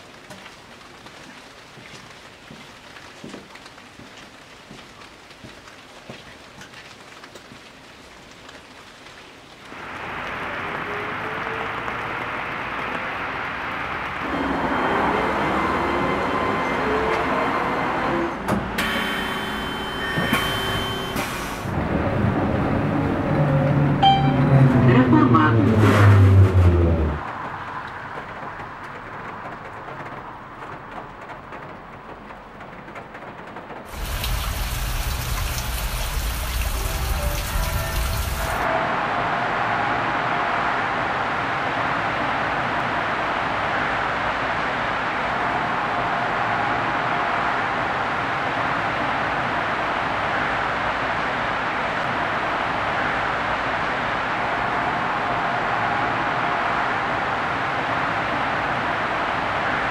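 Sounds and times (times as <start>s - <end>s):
bus tyres hissing on wet street: 9.7s - 23.0s, 33.9s - 59.9s
bus engine: 9.8s - 59.9s
low rumble: 21.8s - 27.3s.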